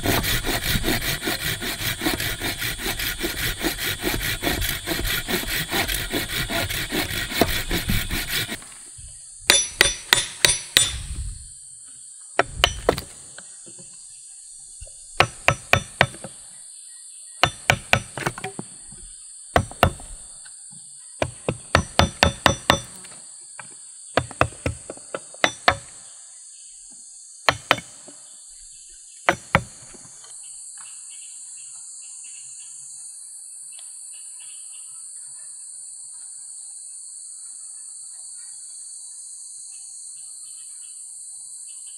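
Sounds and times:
hand saw rasping through wood: 0.0s - 8.8s, 15.2s - 16.3s, 17.4s - 18.5s, 19.6s - 20.2s, 21.7s - 23.0s, 24.2s - 25.9s
blade knocking into wood: 12.4s - 13.8s, 17.4s - 18.7s, 19.6s - 20.2s.

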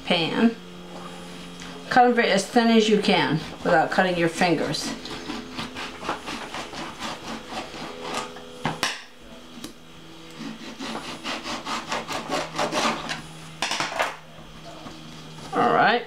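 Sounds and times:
knife sawing through lemon: 2.7s - 8.6s, 10.3s - 13.3s.

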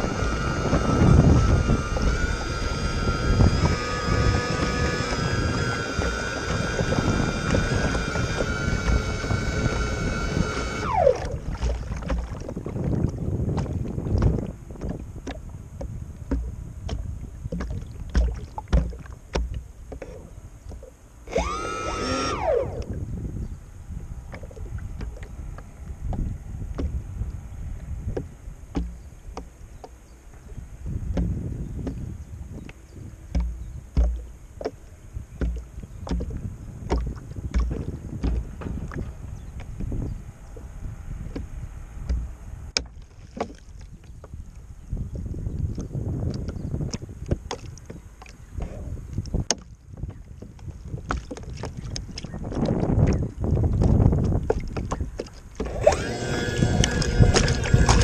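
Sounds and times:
electric motors whining: 0.0s - 11.8s, 21.2s - 23.0s, 55.6s - 58.0s
water slapping against hull: 0.0s - 58.0s
wind buffeting microphone: 0.0s - 58.0s.

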